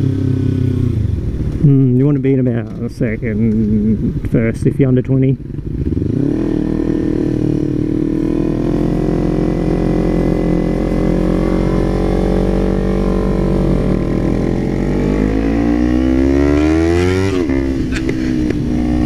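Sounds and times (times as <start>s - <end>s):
motorcycle revving: 0.0s - 19.0s
wind noise: 2.6s - 5.0s.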